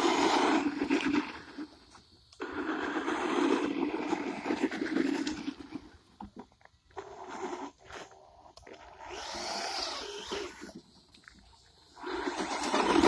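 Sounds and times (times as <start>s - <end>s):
rc truck electric motor: 8.8s - 10.8s, 12.0s - 13.0s.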